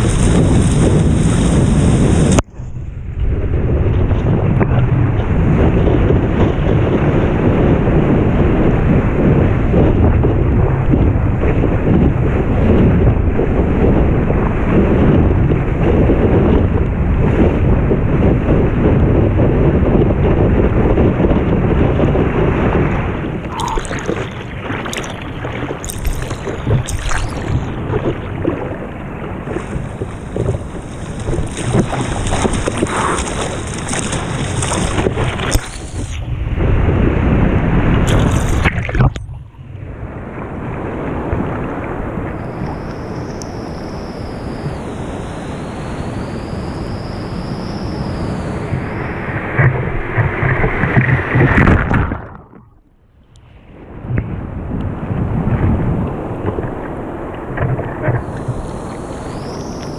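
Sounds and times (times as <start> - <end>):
water slapping camera: 0.0 - 2.5, 21.2 - 37.2, 37.8 - 39.8, 48.3 - 53.0, 55.5 - 59.9
ocean water rushing: 0.0 - 18.8, 19.8 - 59.9
wind buffeting camera: 0.0 - 59.9.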